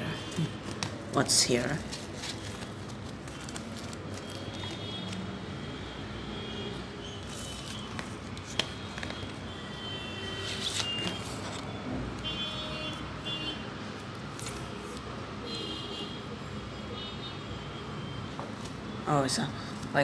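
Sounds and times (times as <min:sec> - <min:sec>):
cards being leafed through: 0:00.3 - 0:05.3, 0:07.2 - 0:09.4, 0:10.4 - 0:11.8.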